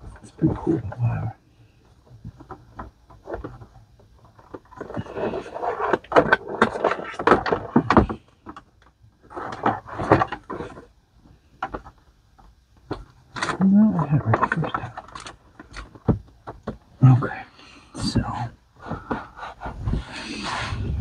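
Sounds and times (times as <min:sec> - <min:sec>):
computer hardware clicks and scraping: 0:02.5 - 0:10.9.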